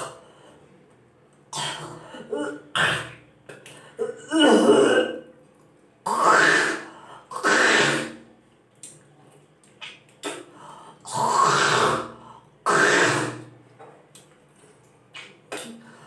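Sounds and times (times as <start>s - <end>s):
spitting: 6.0s - 9.0s, 9.8s - 13.6s.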